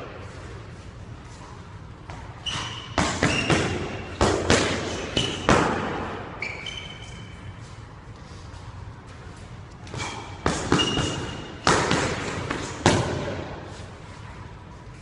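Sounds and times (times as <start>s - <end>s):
sneakers squeaking on wooden floor: 2.1s - 4.2s, 5.1s - 7.8s, 9.9s - 11.6s.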